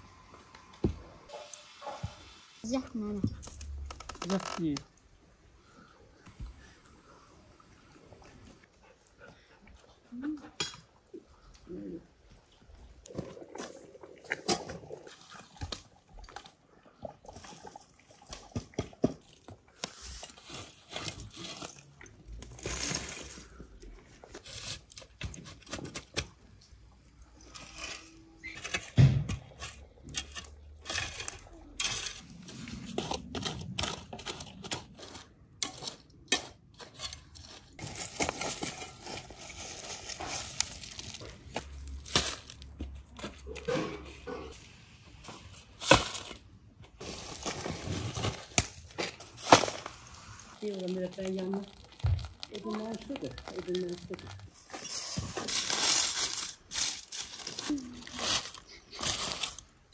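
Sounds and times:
shovel scraping ash and earth: 27.5s - 42.6s
small stones clattering: 47.0s - 59.8s.

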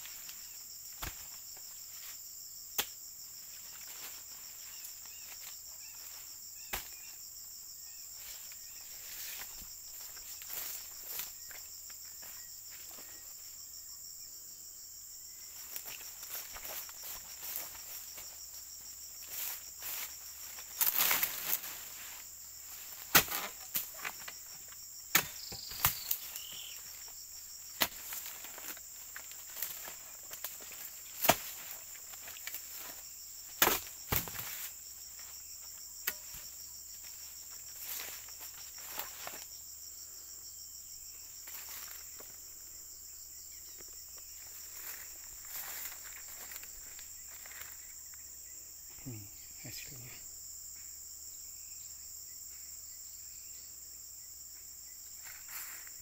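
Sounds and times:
insect drone: 0.0s - 56.0s
chisel striking palm fronds: 6.7s - 7.0s, 23.0s - 24.2s, 25.1s - 26.2s, 27.8s - 28.2s, 31.2s - 31.7s, 33.6s - 34.5s.

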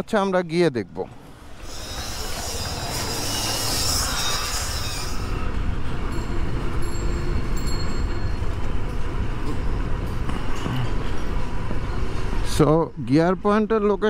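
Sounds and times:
high hiss: 1.2s - 6.3s.

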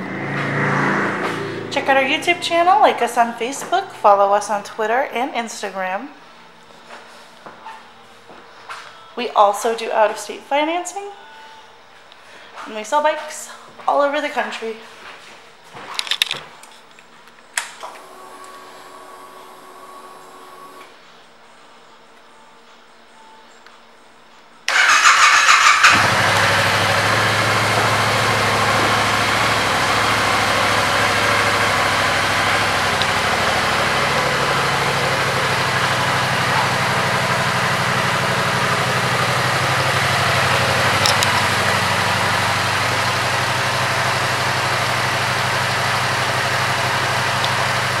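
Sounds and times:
motorcycle electric starter cranking: 24.7s - 48.0s
motorcycle engine idling: 24.7s - 48.0s.

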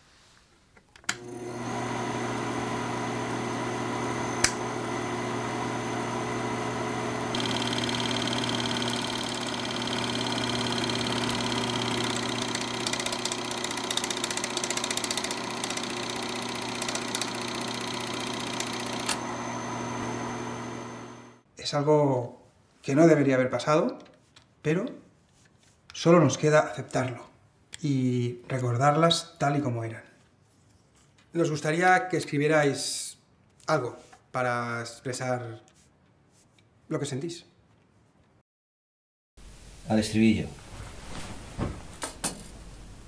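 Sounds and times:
film projector whirring: 1.1s - 21.4s.

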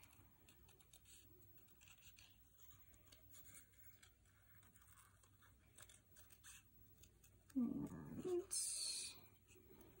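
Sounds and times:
paper rustling: 0.0s - 7.6s.

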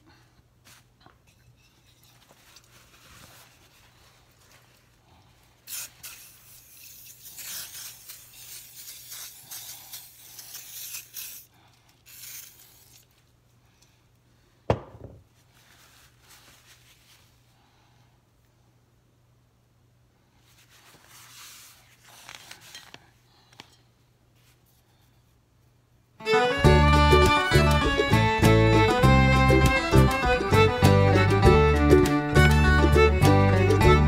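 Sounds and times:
aerosol can spraying: 5.7s - 11.5s, 12.1s - 12.8s.

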